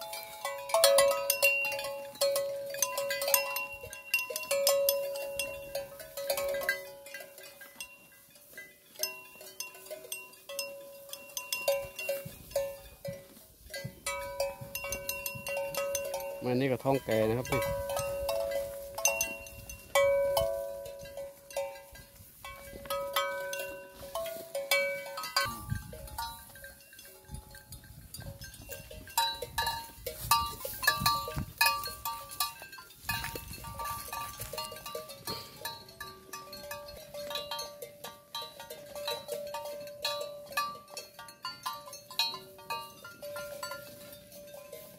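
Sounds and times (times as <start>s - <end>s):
cow bells clanking: 0.0s - 44.9s.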